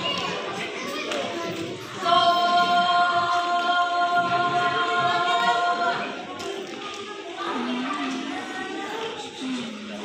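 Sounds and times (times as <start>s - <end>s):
low murmur from hall: 0.0s - 10.0s
choir singing held note: 2.0s - 6.3s.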